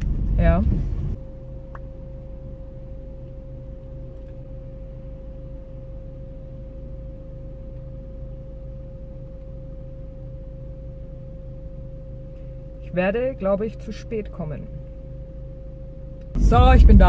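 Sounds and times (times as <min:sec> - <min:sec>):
car engine idling: 0:00.0 - 0:01.2, 0:16.4 - 0:17.0
steady pure tone: 0:00.0 - 0:17.0.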